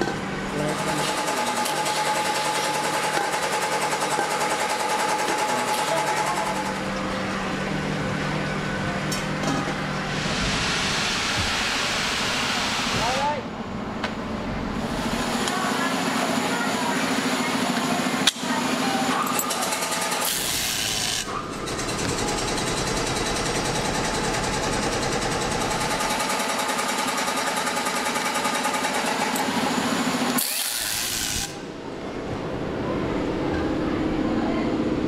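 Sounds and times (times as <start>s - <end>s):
workshop machinery running: 0.0s - 35.0s
pneumatic screwdriver hissing: 20.2s - 21.3s, 30.4s - 31.6s.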